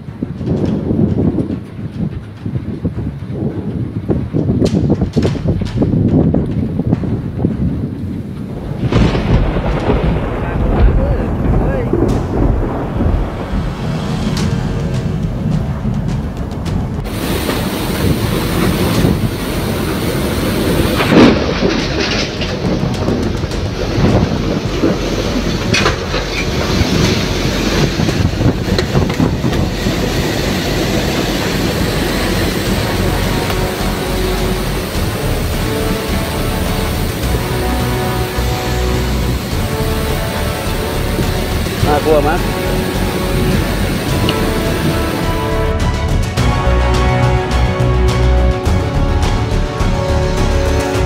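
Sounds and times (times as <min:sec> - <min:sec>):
strong wind buffeting microphone: 0:00.0 - 0:51.0
heavy pulsing bass beat: 0:08.9 - 0:51.0.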